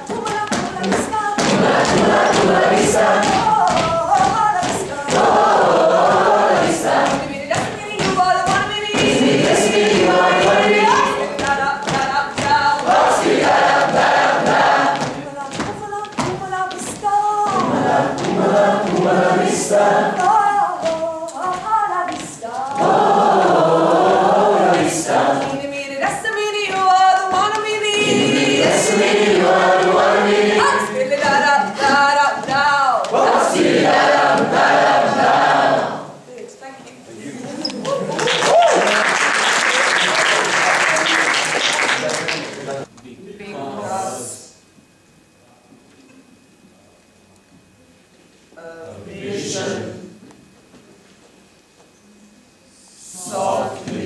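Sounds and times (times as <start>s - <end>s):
group singing in chorus: 0.0s - 36.3s, 43.5s - 44.6s, 48.8s - 50.2s, 52.7s - 54.0s.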